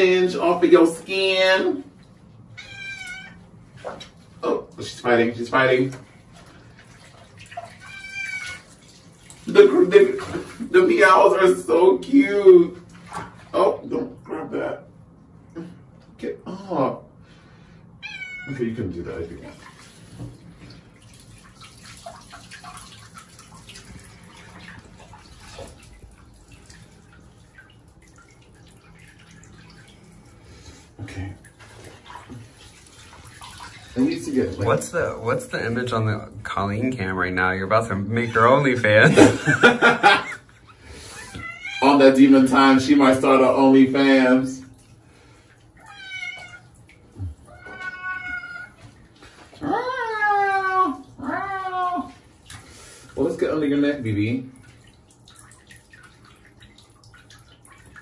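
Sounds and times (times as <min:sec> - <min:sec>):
bathwater splashing and dripping: 0:00.0 - 0:16.3, 0:17.1 - 0:58.0
cat meowing: 0:02.6 - 0:03.4, 0:07.8 - 0:08.7, 0:18.0 - 0:18.6, 0:41.2 - 0:41.9, 0:45.8 - 0:46.7, 0:47.5 - 0:48.8, 0:49.6 - 0:52.2.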